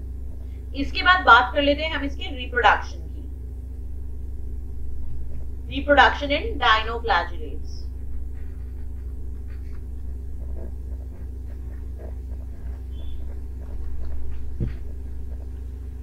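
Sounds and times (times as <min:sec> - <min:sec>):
low electrical hum: 0:00.0 - 0:16.0
soft thump: 0:14.6 - 0:14.8.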